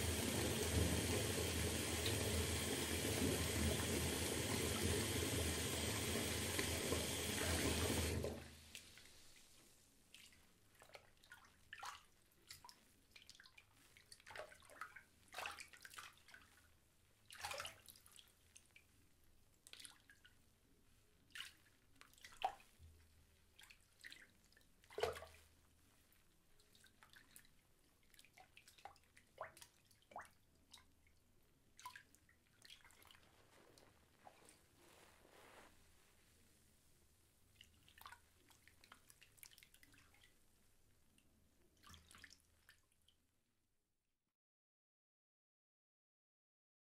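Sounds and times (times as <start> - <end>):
tap water pouring into bathtub: 0.0 - 13.6, 24.9 - 25.5, 41.7 - 43.2
water drips into bathwater: 0.1 - 20.5, 21.2 - 33.3, 37.5 - 40.4, 41.0 - 43.3.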